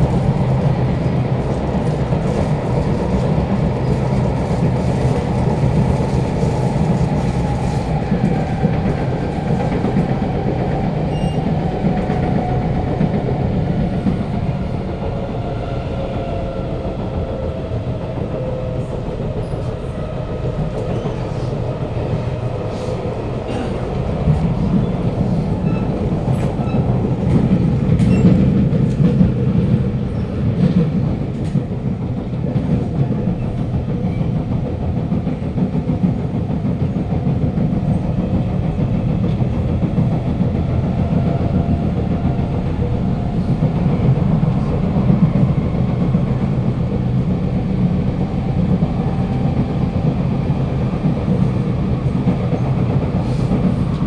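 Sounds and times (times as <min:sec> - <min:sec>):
train wheel and rail rumble: 0:00.0 - 0:54.0
clicks of train wheels: 0:18.0 - 0:54.0.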